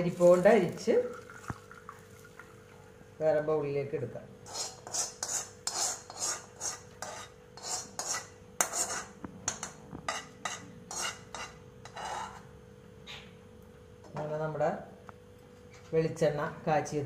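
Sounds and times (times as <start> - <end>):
metal spoon scraping metal pan: 4.4 - 12.5.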